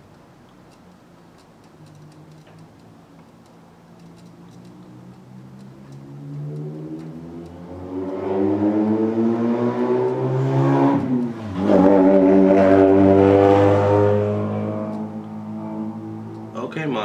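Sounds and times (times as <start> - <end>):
engine revving hard: 6.0 - 16.3.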